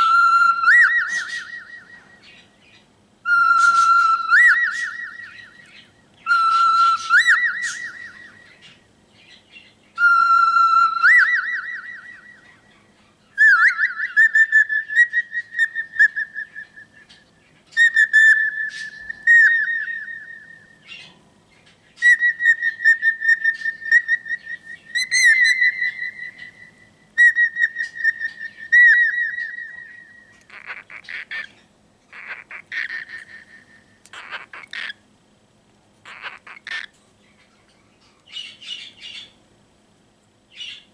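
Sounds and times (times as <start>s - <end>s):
cockatiel whistling: 0.0s - 2.4s, 3.3s - 8.7s, 10.0s - 12.6s, 13.4s - 21.1s, 22.0s - 31.5s
cockatiel chattering calls: 30.4s - 35.0s, 36.0s - 37.0s.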